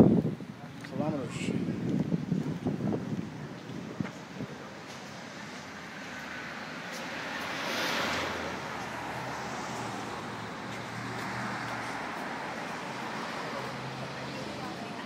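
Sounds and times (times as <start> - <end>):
wind buffeting microphone: 0.0 - 6.0
street traffic: 0.0 - 15.0.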